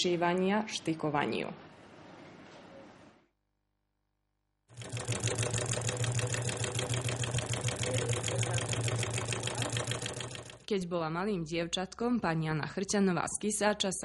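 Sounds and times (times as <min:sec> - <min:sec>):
sewing machine stitching: 0:04.7 - 0:10.7.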